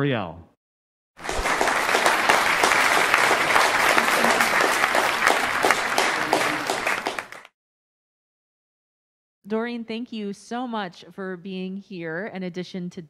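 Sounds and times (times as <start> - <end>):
audience applauding: 1.2 - 7.5.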